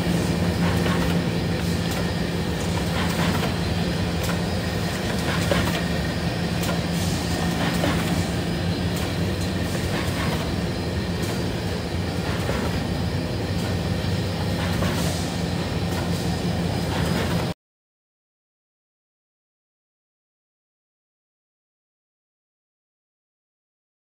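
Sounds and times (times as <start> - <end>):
machine rattling clatter: 0.0 - 15.2
machine low hum: 0.0 - 17.5.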